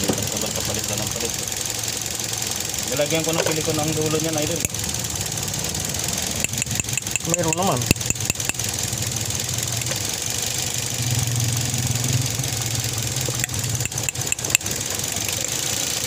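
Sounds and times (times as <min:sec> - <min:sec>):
car engine idling: 0:00.0 - 0:16.0
sharp clicks: 0:06.4 - 0:08.6, 0:13.3 - 0:14.7.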